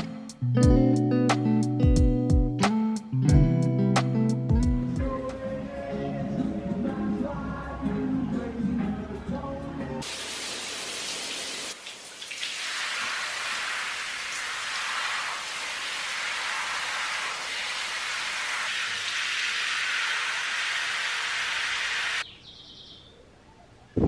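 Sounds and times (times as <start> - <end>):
shower water spraying: 10.0 - 22.2.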